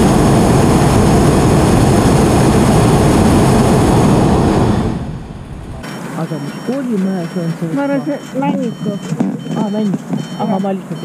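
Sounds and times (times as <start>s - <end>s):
propane burner blast: 0.0s - 6.3s.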